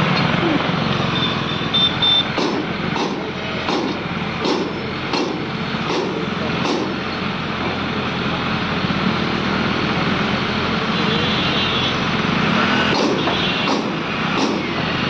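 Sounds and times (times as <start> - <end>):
crane diesel engine running: 0.0 - 15.0
short sharp knocks: 13.0 - 14.7.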